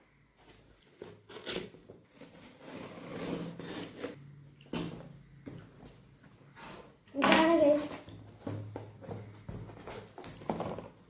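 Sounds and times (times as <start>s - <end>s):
knife slitting packing tape: 1.3s - 4.2s.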